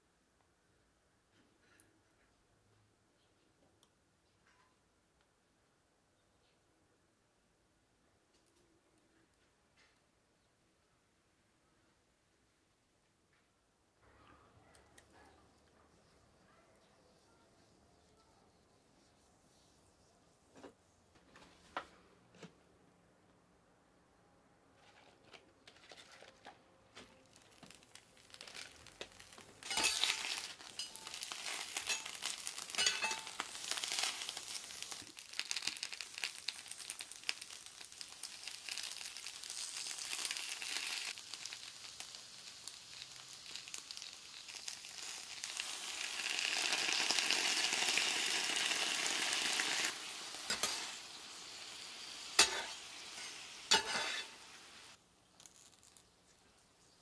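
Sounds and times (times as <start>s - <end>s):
cabbage sizzling on griddle: 27.3s - 56.1s
spatulas clacking on metal: 29.6s - 33.6s.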